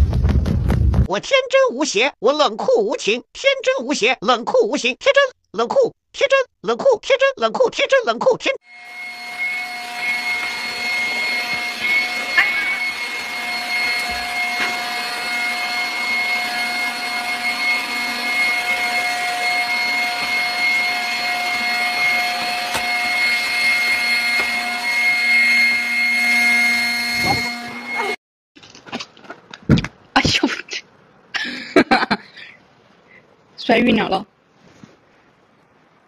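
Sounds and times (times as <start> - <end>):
vacuum cleaner running: 8.7 - 28.2.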